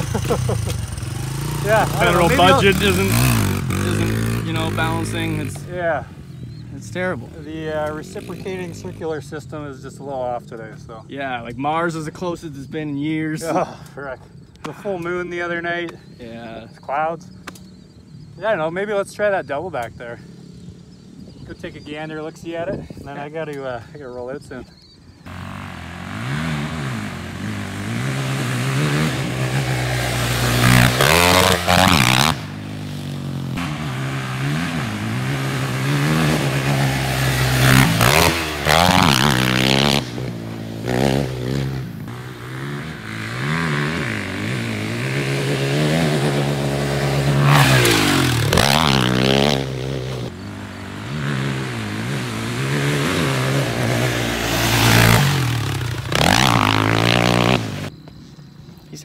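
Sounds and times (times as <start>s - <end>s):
quad engine revving: 0.0s - 9.4s, 25.3s - 57.9s.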